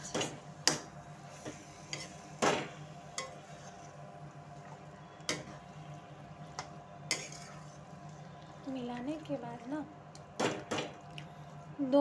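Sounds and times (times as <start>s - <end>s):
spatula stirring in metal pan: 0.0s - 9.1s.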